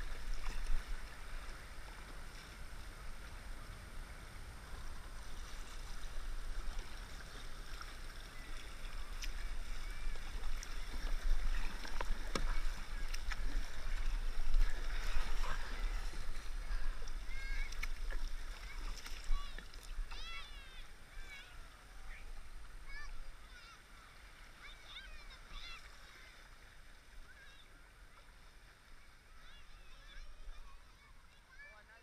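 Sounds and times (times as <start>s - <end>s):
paddle strokes: 0.0s - 32.0s
water rushing along hull: 0.0s - 32.0s.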